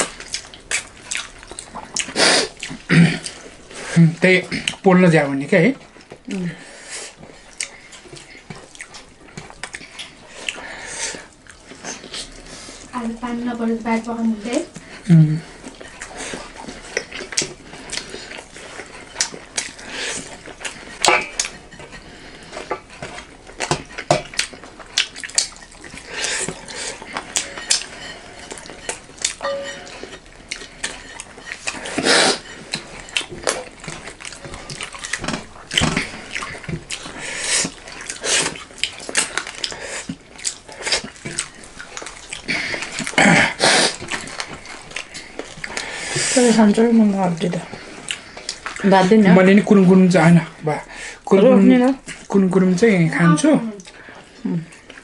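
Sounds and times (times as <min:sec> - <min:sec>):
chewing and lip smacking: 0:00.0 - 0:03.7, 0:07.2 - 0:12.9, 0:14.0 - 0:43.2, 0:43.9 - 0:46.2, 0:47.6 - 0:49.2
dishes or cutlery clinking: 0:27.3 - 0:30.2.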